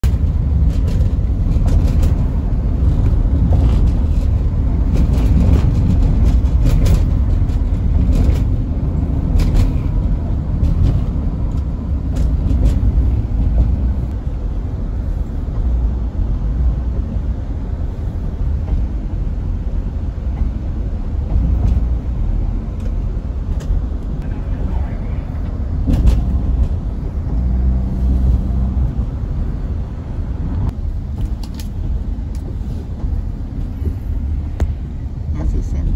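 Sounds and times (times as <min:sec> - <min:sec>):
sharp rattles and knocks: 0:00.0 - 0:14.2, 0:25.4 - 0:29.4
vehicle rumble from inside: 0:00.0 - 0:35.9.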